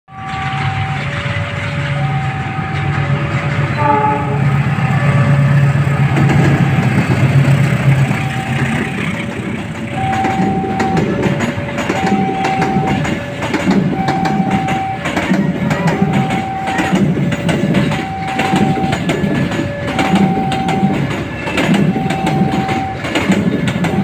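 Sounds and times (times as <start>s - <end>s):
train horn blast: 0.1s - 5.2s
locomotive engine rumbling: 0.1s - 24.0s
train wheels clattering over rail joints: 0.2s - 24.0s
level crossing two-tone alarm: 9.9s - 24.0s.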